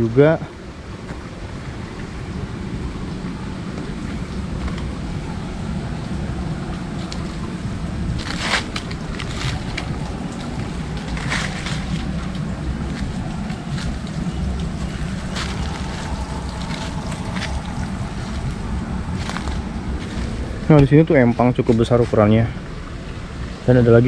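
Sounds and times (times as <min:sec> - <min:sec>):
steady low rumble: 0:00.0 - 0:23.7
footsteps crackling through dry leaves: 0:08.2 - 0:20.7.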